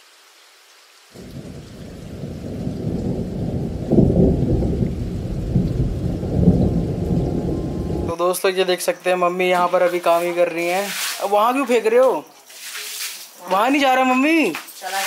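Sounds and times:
rain hiss: 0.0 - 15.0
thunder rumbling: 1.2 - 8.2.

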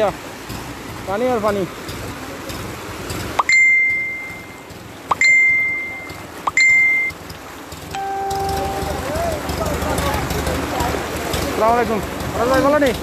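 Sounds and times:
bicycle bell ringing: 3.4 - 7.1, 7.9 - 9.4.

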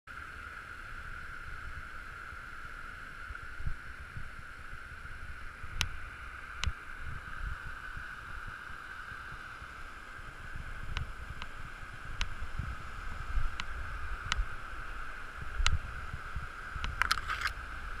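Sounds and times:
sharp clicks: 16.8 - 17.6.

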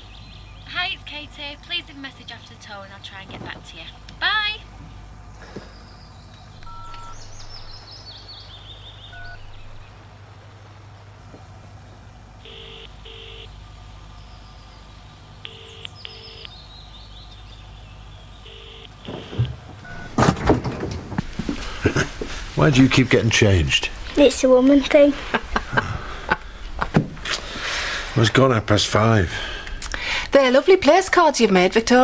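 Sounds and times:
electronic beeps stepping down: 6.7 - 7.2, 9.1 - 9.5, 15.4 - 16.6, 18.5 - 20.2.

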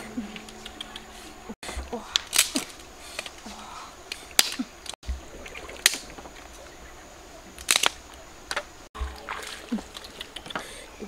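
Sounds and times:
wooden sticks clacking: 0.0 - 6.7, 7.6 - 11.0
shallow river rushing: 4.0 - 11.0.

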